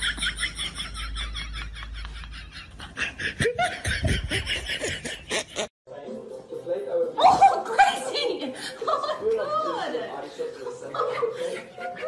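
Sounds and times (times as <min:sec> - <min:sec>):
person laughing hard: 0:00.0 - 0:05.7.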